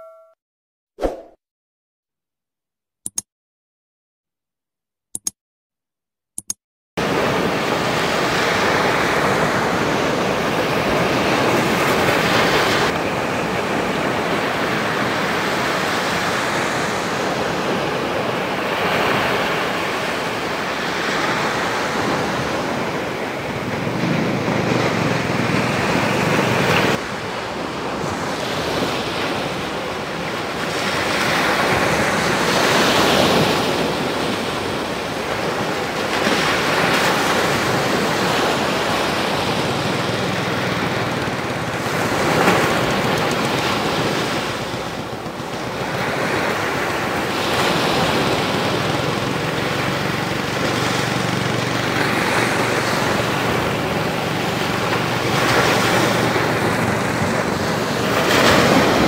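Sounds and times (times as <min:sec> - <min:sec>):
waves washing up a beach: 0:07.0 - 0:59.0.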